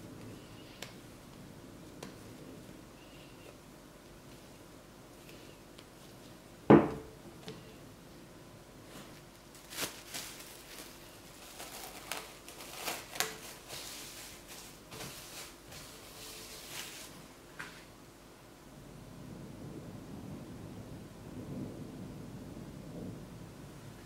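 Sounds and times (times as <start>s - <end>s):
cling film crinkling: 8.9s - 17.2s.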